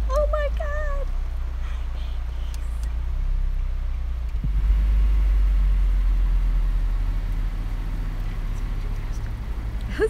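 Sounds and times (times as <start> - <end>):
car engine rumbling: 0.0 - 10.0.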